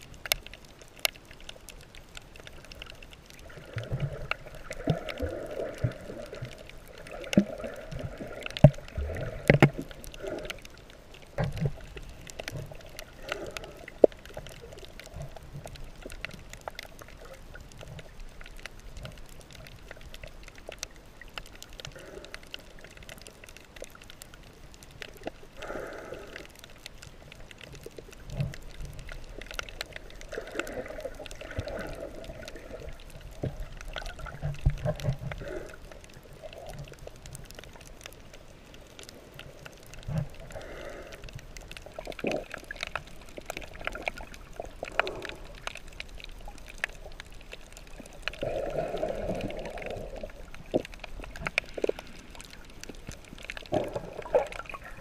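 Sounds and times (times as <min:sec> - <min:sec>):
small clicks and crackles: 0:00.0 - 0:55.0
muffled underwater gurgling: 0:39.8 - 0:55.0.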